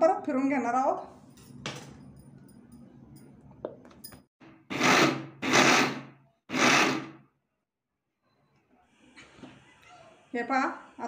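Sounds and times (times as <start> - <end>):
mixer grinder grinding: 4.4 - 7.2.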